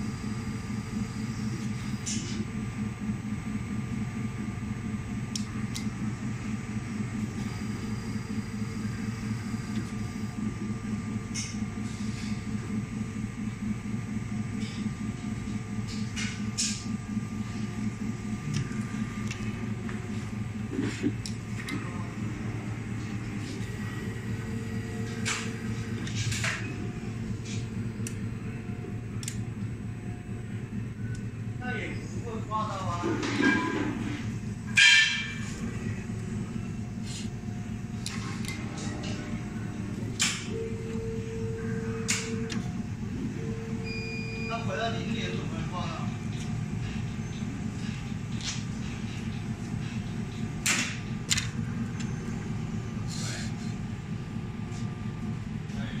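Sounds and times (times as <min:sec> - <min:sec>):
machine humming: 0:00.0 - 0:56.0
sharp mechanical clicks: 0:50.6 - 0:51.6.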